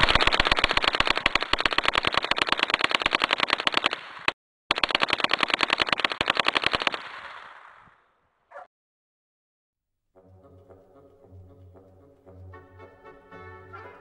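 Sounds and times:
gatling gun firing rapidly: 0.0 - 7.5.

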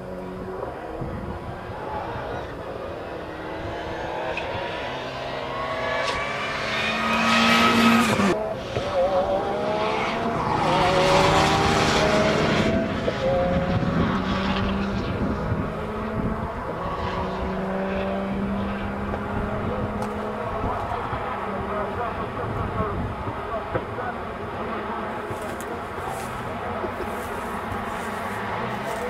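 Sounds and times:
rally car engines revving: 0.0 - 29.0.

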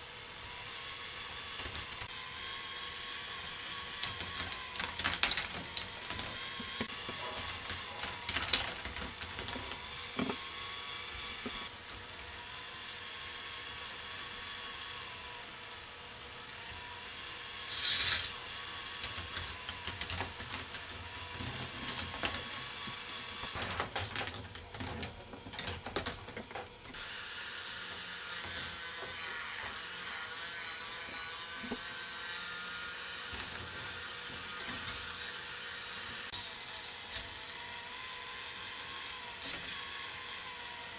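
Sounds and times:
plastic balls clattering on tracks: 1.5 - 2.1, 3.4 - 10.4, 17.7 - 26.9, 32.8 - 35.3.

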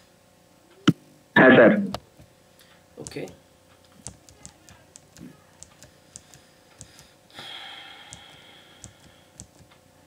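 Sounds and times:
computer mouse clicking: 3.0 - 7.1, 8.1 - 9.8
soft breath-like rush: 6.4 - 9.4.

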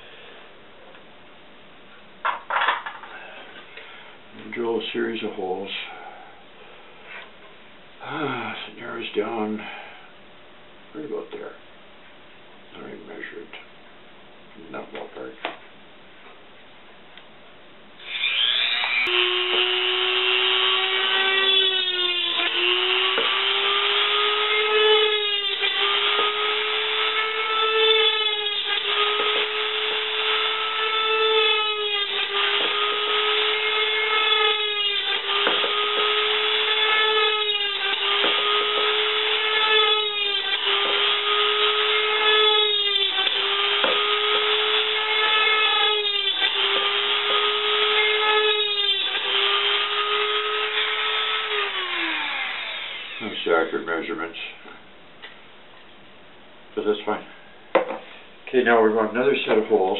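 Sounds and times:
drill bit cutting thin metal can: 18.0 - 53.4
rotary tool whining: 18.0 - 53.5.

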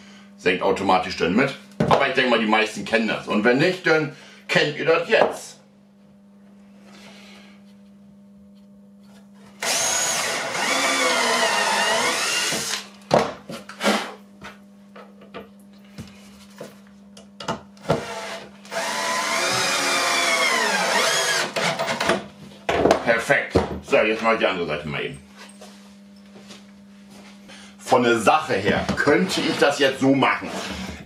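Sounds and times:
cordless drill motor whine: 9.6 - 13.0, 17.8 - 22.1.

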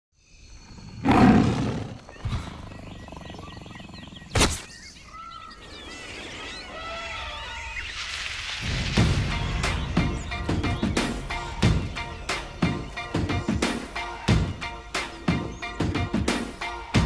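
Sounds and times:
tropical birds chirping and whistling: 0.2 - 13.3, 14.4 - 16.3
big cat roar: 0.7 - 4.4
sharp crack: 4.3 - 4.7.

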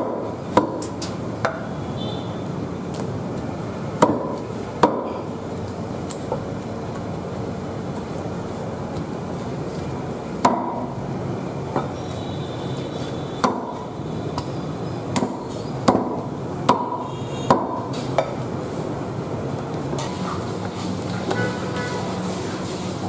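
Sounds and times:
cleaver chopping on wooden block: 0.0 - 1.6, 4.0 - 5.2, 10.4 - 10.9, 13.4 - 14.5, 15.1 - 18.4.

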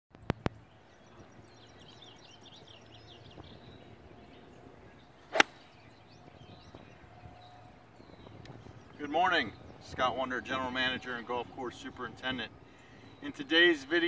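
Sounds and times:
golf club swish: 5.2 - 5.8
golf club striking ball: 5.3 - 5.7.

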